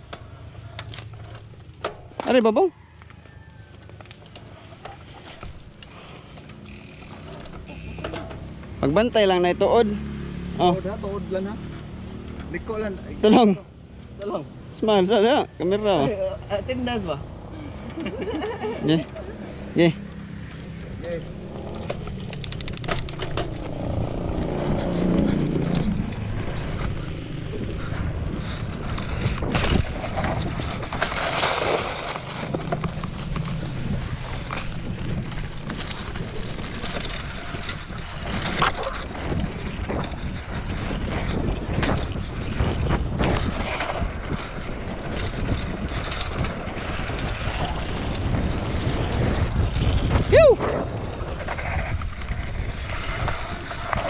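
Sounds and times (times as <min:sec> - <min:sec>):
bike knocks and rattles: 0:00.0 - 0:02.5, 0:03.9 - 0:09.1, 0:20.2 - 0:54.0
wind buffeting microphone: 0:17.3 - 0:54.0
tyres rolling on dirt: 0:17.9 - 0:54.0.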